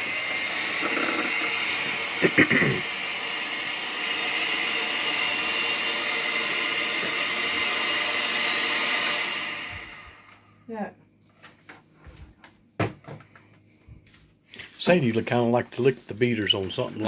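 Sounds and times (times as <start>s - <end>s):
electric hand mixer running: 0.0s - 10.5s.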